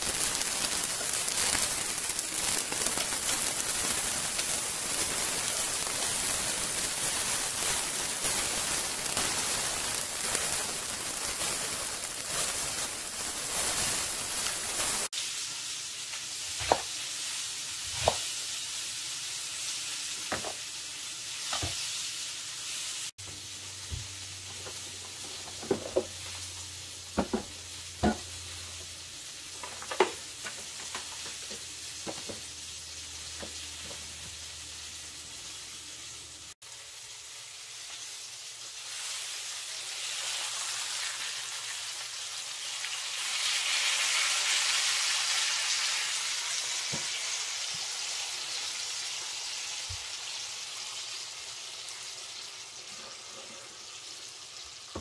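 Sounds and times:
vegetables sizzling in a frying pan: 0.0s - 55.0s
kitchen clatter: 20.3s - 20.6s, 24.5s - 26.4s, 27.1s - 28.4s, 29.5s - 32.5s.

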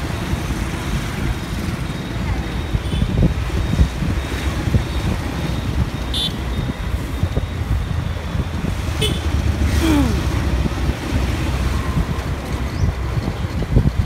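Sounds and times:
wind rumble and road noise: 0.0s - 14.0s
vehicle horn toots: 9.0s - 9.3s.

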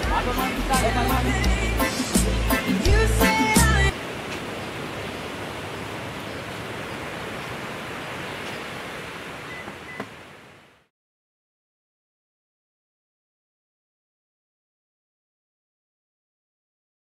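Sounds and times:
background music: 0.0s - 3.9s
outdoor background hiss: 0.0s - 10.9s.

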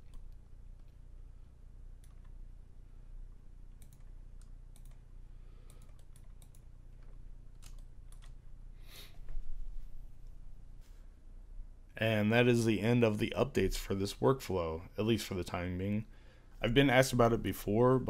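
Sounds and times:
steady low hum: 0.0s - 18.0s
keyboard and mouse clicks: 2.0s - 2.4s, 3.8s - 5.0s, 5.7s - 8.4s.

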